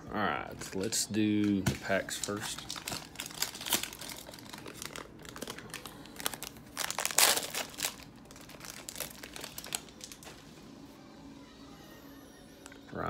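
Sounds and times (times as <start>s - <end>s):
plastic wrapper crinkling and tearing: 0.6s - 10.4s.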